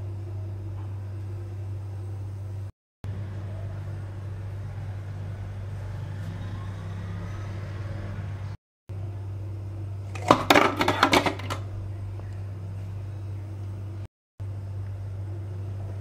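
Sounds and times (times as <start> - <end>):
steady low hum: 0.0 - 16.0
ice cubes clattering in plastic bowl: 10.2 - 11.6.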